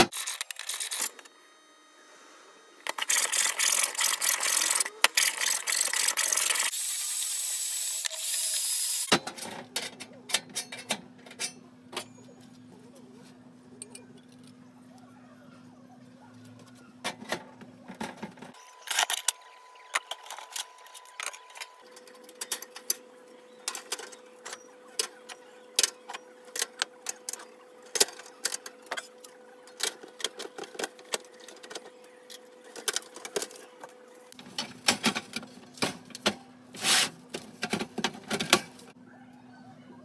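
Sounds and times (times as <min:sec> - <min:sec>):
steel panels and pipe clinking: 0:09.1 - 0:12.3.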